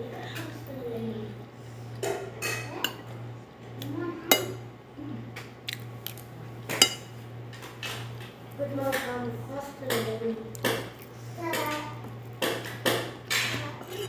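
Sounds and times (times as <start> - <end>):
steady low hum: 0.0 - 14.0
cutlery clinking and scraping on plate: 6.7 - 8.1, 11.6 - 14.0.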